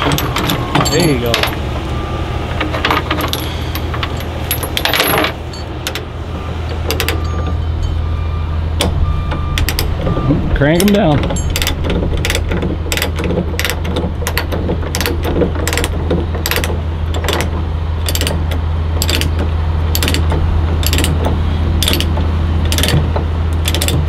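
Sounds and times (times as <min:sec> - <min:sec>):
steady low drone: 0:00.0 - 0:24.0
ratchet pawl clicking: 0:10.8 - 0:24.0.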